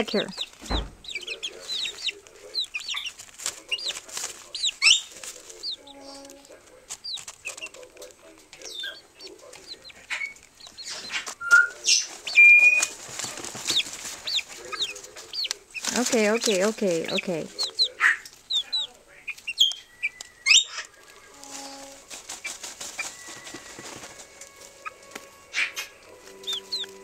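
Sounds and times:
chickens cheeping: 0.0 - 27.0
chickens clucking: 0.0 - 27.0
scratching and rustling in feed: 0.0 - 27.0.

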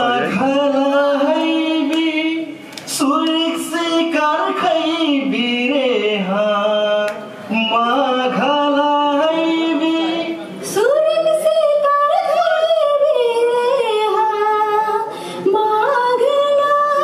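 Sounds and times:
woman singing into microphone: 8.0 - 17.0.

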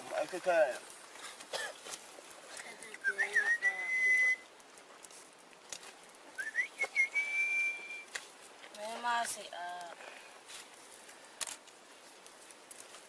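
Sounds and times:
high whistle with upward slide: 6.4 - 8.1.

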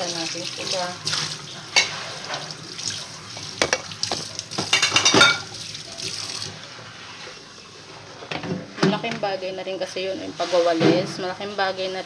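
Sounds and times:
tap water running into sink: 0.0 - 6.6
dishes clattering: 1.7 - 2.5, 3.4 - 5.6.

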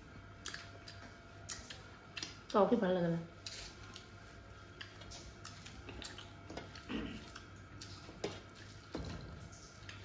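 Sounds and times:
wet chewing and finger smacks: 0.4 - 2.6, 3.4 - 8.9, 9.7 - 10.0.

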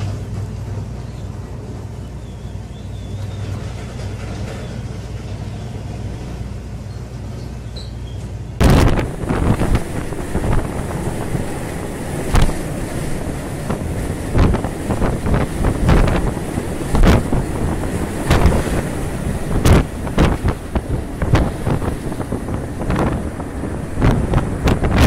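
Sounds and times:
breaking waves: 8.6 - 25.0
storm wind buffeting microphone: 8.6 - 25.0.

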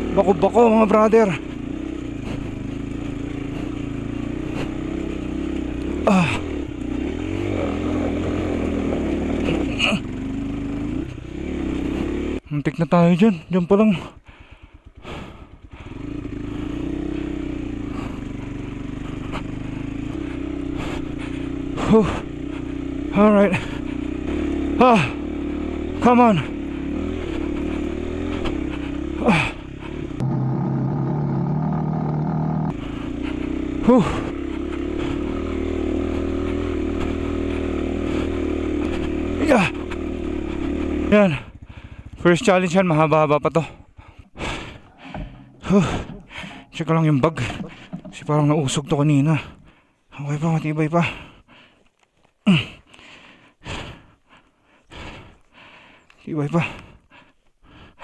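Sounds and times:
motorcycle engine in low gear: 0.0 - 53.0, 53.7 - 57.0.

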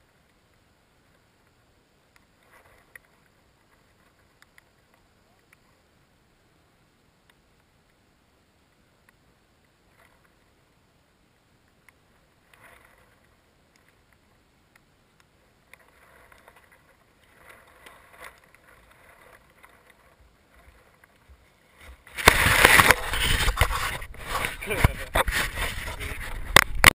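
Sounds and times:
faint rustles in grass: 7.6 - 26.9
microphone handling noise: 21.8 - 26.9.

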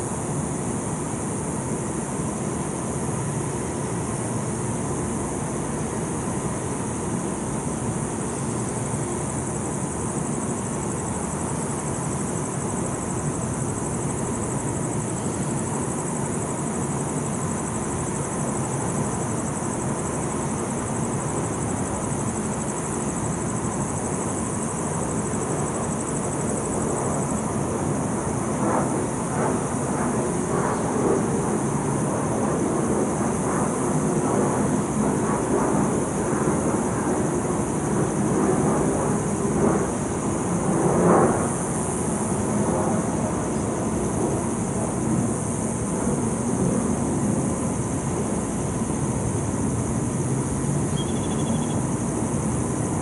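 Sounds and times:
faint high whine: 0.0 - 53.0
distant traffic hum: 41.2 - 53.0.

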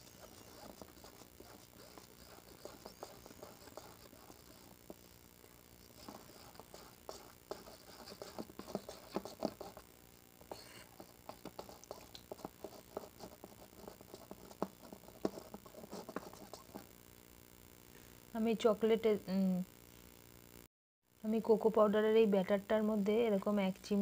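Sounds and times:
utensil tapping and scraping bowl: 0.0 - 5.0, 5.9 - 9.8.

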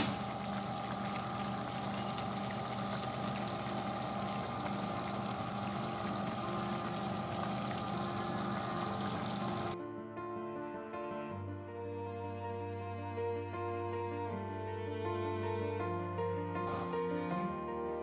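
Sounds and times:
low steady hum: 0.0 - 9.8
stew bubbling in a pan: 0.0 - 9.8.

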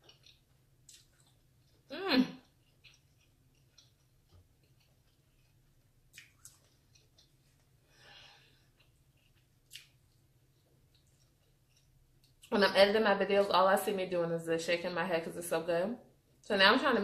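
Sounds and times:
woman eating mouth sounds: 0.0 - 7.8
soft breath: 7.8 - 8.8.

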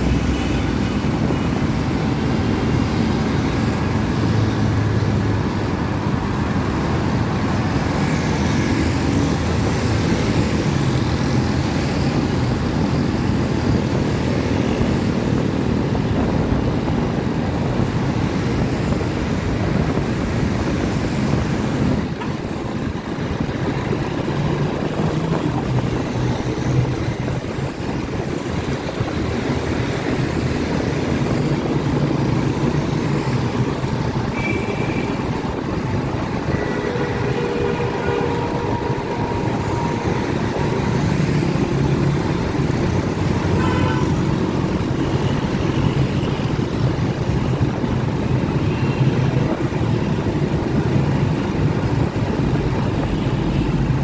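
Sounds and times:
motorcycle and car engines: 0.0 - 54.0
road noise: 0.0 - 54.0
horn toots: 36.5 - 40.9.

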